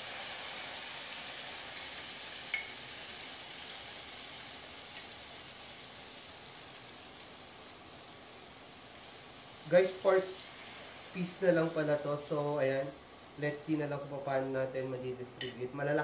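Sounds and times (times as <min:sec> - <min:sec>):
chicken sizzling in a pan: 0:00.0 - 0:16.0
light metallic clink: 0:02.5 - 0:02.8.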